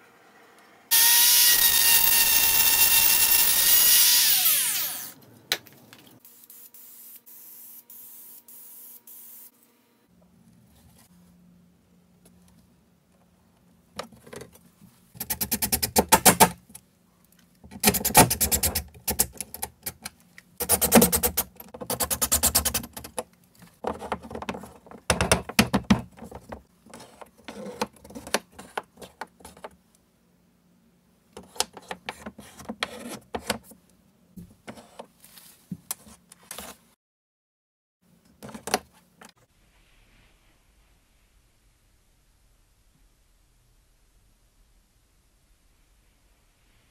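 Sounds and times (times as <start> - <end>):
power drill driving screws: 0.9 - 5.2.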